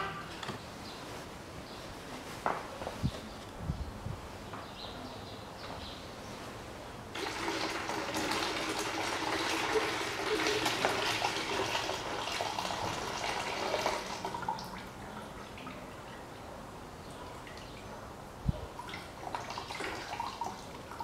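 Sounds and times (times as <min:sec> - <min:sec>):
liquid pouring and splashing: 0:07.1 - 0:16.3, 0:18.8 - 0:21.0.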